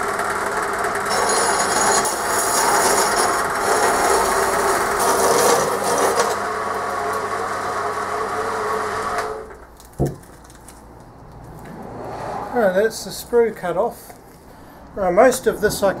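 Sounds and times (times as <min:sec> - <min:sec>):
bandsaw cutting metal: 0:00.0 - 0:09.5.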